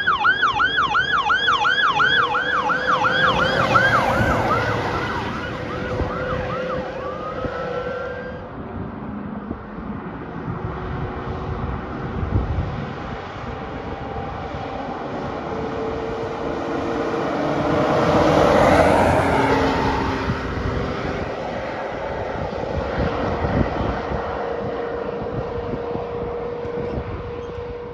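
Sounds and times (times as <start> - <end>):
fire engine siren yelping: 0.0 - 8.6, 13.8 - 22.5
fire truck passing: 0.0 - 27.9
road noise: 0.0 - 27.9.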